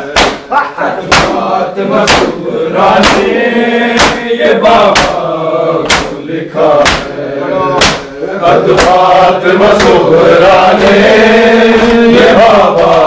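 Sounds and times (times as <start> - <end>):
men chanting mournful melody: 0.0 - 13.0
hand slaps on bare chests: 0.1 - 1.4, 2.0 - 3.4, 4.0 - 5.2, 5.8 - 6.2, 6.8 - 7.2, 7.8 - 8.1, 8.7 - 10.1.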